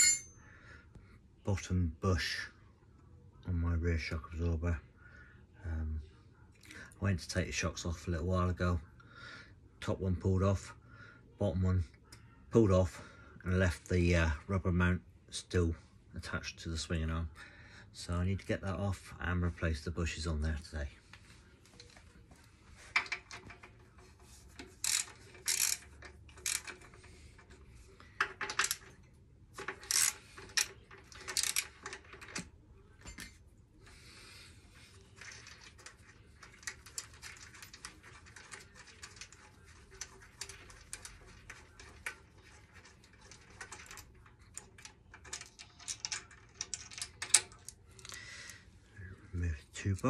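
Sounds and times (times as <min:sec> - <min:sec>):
hand tools clicking on bolts: 0:24.8 - 0:27.0, 0:29.6 - 0:32.4.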